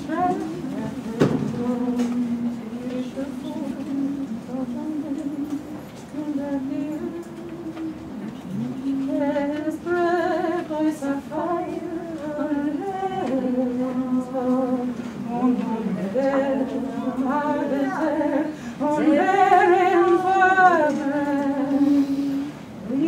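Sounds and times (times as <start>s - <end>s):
woman singing unaccompanied: 0.0s - 23.0s.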